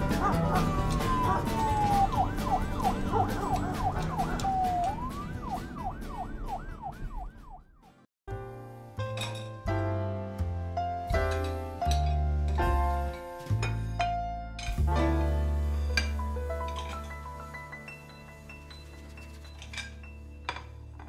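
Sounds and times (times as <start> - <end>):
background music with beat: 0.0 - 7.2
falling whistle glide: 0.3 - 7.3
warbling swooping tone: 0.3 - 7.6.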